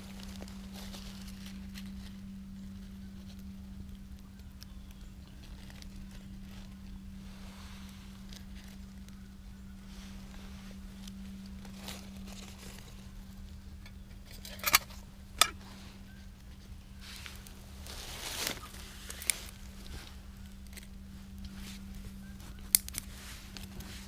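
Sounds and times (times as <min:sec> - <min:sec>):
dry leaves crackling: 0:00.0 - 0:24.0
sharp snaps: 0:22.6 - 0:23.1.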